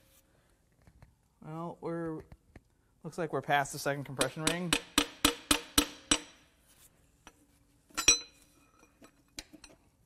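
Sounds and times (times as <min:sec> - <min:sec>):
sharp metal taps: 0:04.2 - 0:06.4
ringing metal clink: 0:08.0 - 0:09.1.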